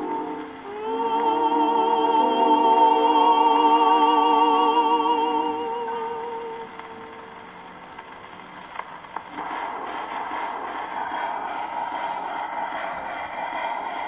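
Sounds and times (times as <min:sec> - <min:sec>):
record surface hiss: 0:00.0 - 0:14.0
record clicks: 0:06.7 - 0:11.6
needle swishing in run-out groove: 0:09.4 - 0:14.0.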